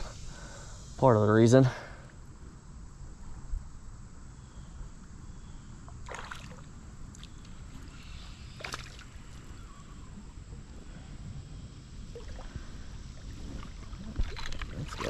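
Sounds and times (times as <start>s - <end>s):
low rumble of water and wind: 1.1s - 15.0s
fish splashing at surface: 6.0s - 6.7s, 8.6s - 9.2s.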